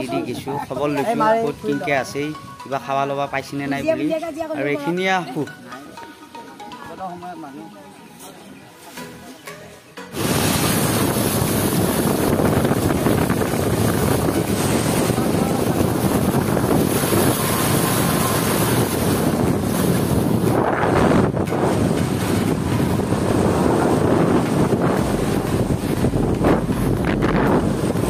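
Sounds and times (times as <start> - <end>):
water hissing from wheels: 10.1 - 28.0
wind buffeting microphone: 10.1 - 28.0.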